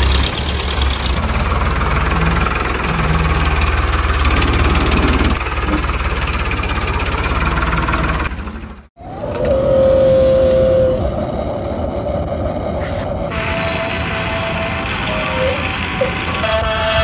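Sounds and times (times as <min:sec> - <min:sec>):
diesel tractor engine running: 0:00.0 - 0:09.6, 0:12.3 - 0:17.0.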